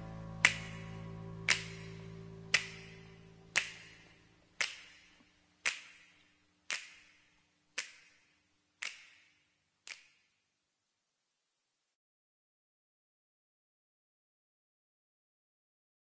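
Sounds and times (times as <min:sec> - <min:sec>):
held notes of music: 0:00.0 - 0:04.4
finger snaps with echo: 0:00.4 - 0:10.4.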